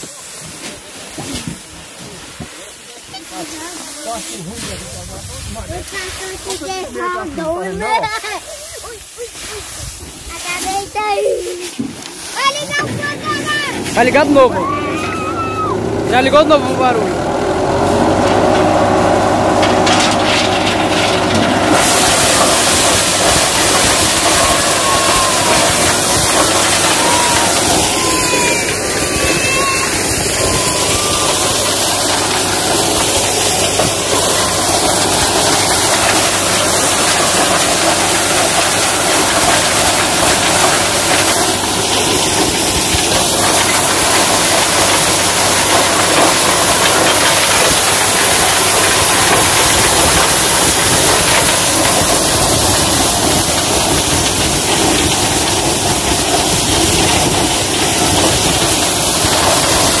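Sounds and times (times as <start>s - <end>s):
threshing machine hiss: 0.0s - 60.0s
tractor engine hum: 12.4s - 60.0s.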